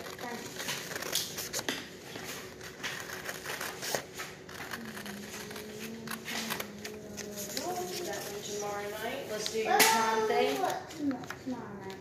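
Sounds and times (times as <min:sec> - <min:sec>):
paper rustling: 0:00.0 - 0:12.0
scissors cutting paper: 0:00.0 - 0:12.0.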